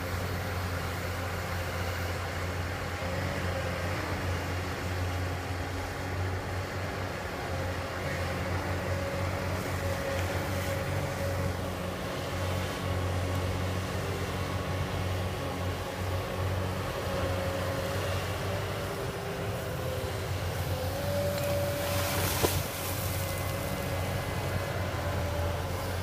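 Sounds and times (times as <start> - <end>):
excavator diesel engine humming: 0.0 - 26.0
excavator arm digging in water: 20.5 - 26.0.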